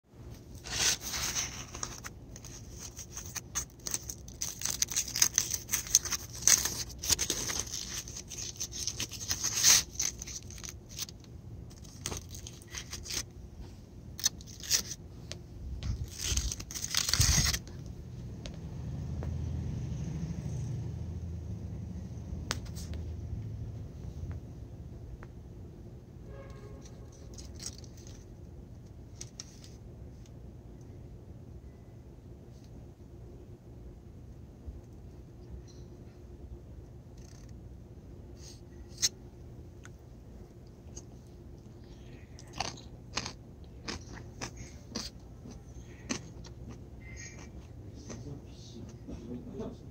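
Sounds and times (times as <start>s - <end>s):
low steady rumble: 0.1s - 49.9s
aluminium foil crinkling: 0.5s - 13.3s, 14.2s - 15.0s, 15.8s - 17.8s, 26.8s - 28.3s.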